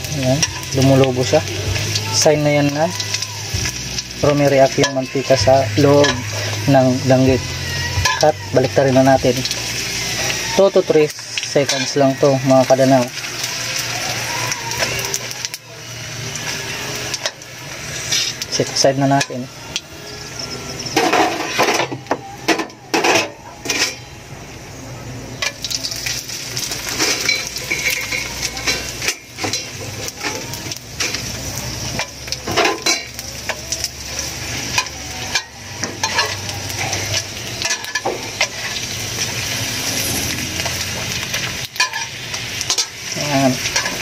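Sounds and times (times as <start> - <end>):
fish sizzling in hot oil: 0.0 - 44.0
metal spatula scraping a wok: 17.1 - 18.4, 20.8 - 21.9, 26.6 - 29.7, 34.7 - 44.0.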